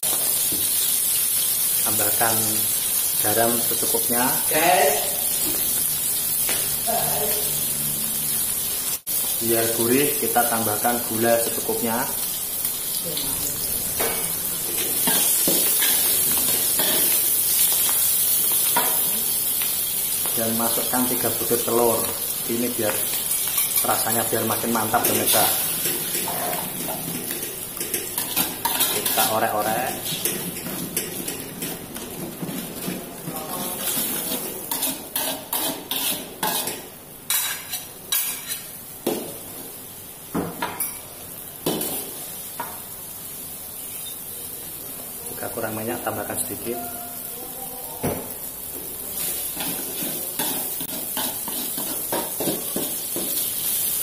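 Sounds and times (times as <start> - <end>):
greens sizzling in hot oil: 0.0 - 54.0
metal spatula scraping wok: 25.0 - 38.7
metal spatula scraping pan: 33.5 - 38.7.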